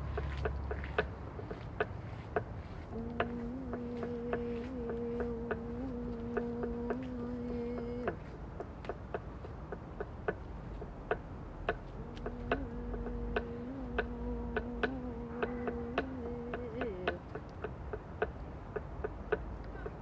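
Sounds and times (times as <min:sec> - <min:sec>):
woman humming low note: 0:02.9 - 0:08.2, 0:11.9 - 0:17.2.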